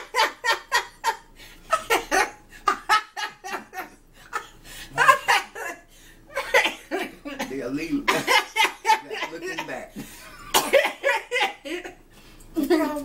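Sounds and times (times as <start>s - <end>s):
woman laughing heartily: 0.0s - 7.2s, 10.1s - 12.0s.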